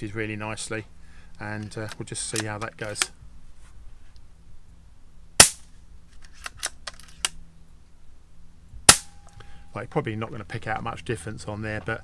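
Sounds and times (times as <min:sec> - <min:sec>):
air rifle shot crack: 0:05.4 - 0:05.7, 0:08.9 - 0:09.2.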